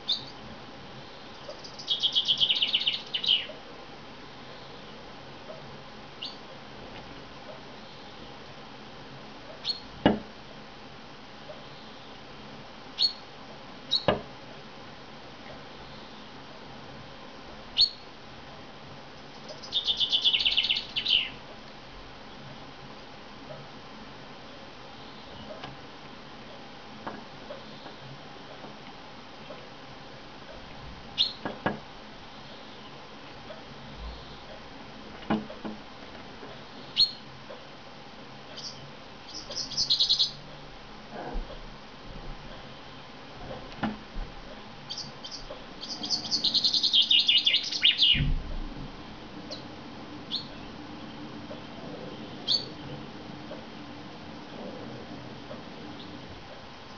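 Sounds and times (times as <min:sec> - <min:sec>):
falling bird song trill: 0:00.0 - 0:00.4, 0:01.0 - 0:03.6, 0:06.2 - 0:06.4, 0:09.6 - 0:09.9, 0:13.0 - 0:13.3, 0:13.9 - 0:14.2, 0:17.8 - 0:18.1, 0:19.3 - 0:21.4, 0:31.2 - 0:31.4, 0:36.8 - 0:37.2, 0:38.6 - 0:40.4, 0:44.9 - 0:48.4, 0:49.4 - 0:53.2
bird call notes: 0:01.4 - 0:03.6, 0:19.5 - 0:21.4, 0:38.6 - 0:40.4, 0:44.9 - 0:48.3, 0:52.2 - 0:53.0.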